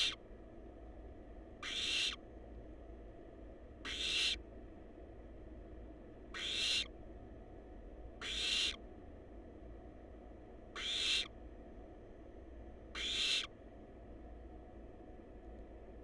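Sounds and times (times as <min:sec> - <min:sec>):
owl nestlings hissing: 0:00.0 - 0:00.2, 0:01.6 - 0:02.2, 0:03.8 - 0:04.4, 0:06.4 - 0:06.9, 0:08.2 - 0:08.8, 0:10.8 - 0:11.3, 0:13.0 - 0:13.5.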